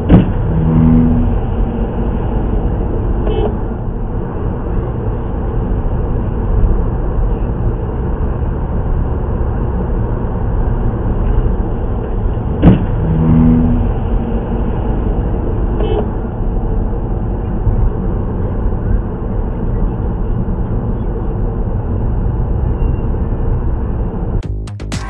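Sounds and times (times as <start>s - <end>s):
low steady hum: 0.0s - 7.6s
car road and engine noise: 0.0s - 24.6s.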